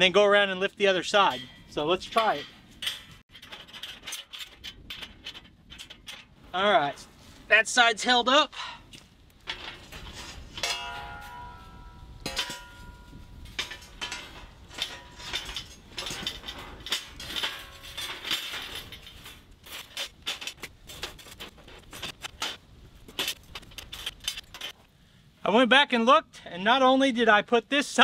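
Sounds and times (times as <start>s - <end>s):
steel panels clanking and scraping: 0.9s - 7.2s, 9.2s - 24.8s
steel ringing: 10.6s - 18.2s.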